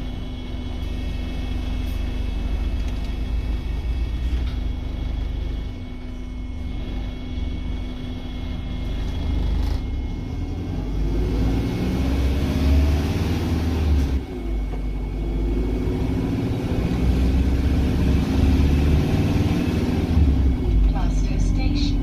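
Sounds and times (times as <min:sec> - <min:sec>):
steady low rumble: 0:00.0 - 0:11.4, 0:20.1 - 0:22.0
bus engine: 0:00.0 - 0:22.0.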